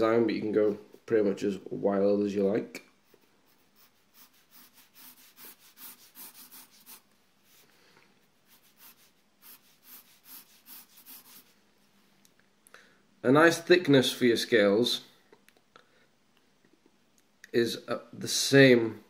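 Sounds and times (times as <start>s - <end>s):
pencil sketching on paper: 3.5s - 7.1s, 8.4s - 11.6s.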